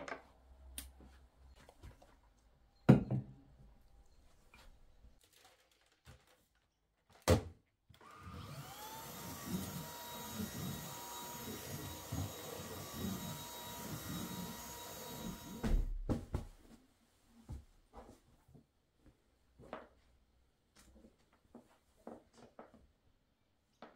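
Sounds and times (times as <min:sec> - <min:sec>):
vacuum cleaner motor whine: 0:08.0 - 0:15.9
thump: 0:15.6 - 0:16.5.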